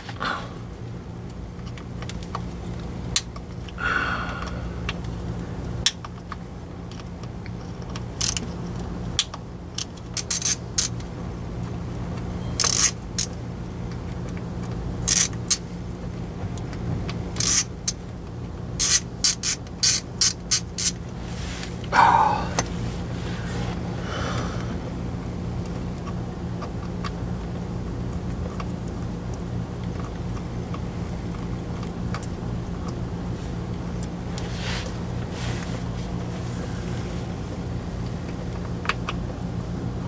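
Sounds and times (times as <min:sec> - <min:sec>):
steady low hum: 0:00.0 - 0:40.0
hand ratchet clicking: 0:08.2 - 0:08.5, 0:09.2 - 0:11.0, 0:12.6 - 0:13.4, 0:15.1 - 0:15.6, 0:17.4 - 0:18.0, 0:18.8 - 0:21.0.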